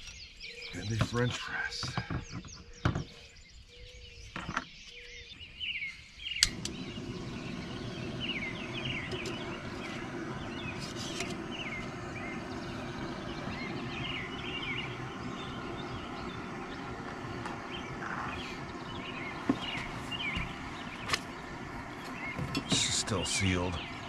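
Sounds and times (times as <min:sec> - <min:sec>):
birds chirping: 0:00.0 - 0:24.0
gas stove burner hissing: 0:06.4 - 0:24.0.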